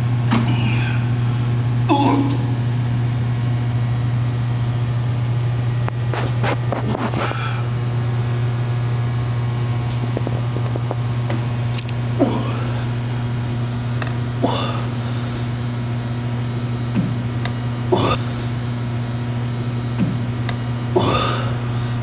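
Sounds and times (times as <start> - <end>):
ventilation hum: 0.0 - 22.0
forceful exhalations of effort: 0.4 - 2.2, 12.2 - 13.0, 17.9 - 18.6, 21.0 - 22.0.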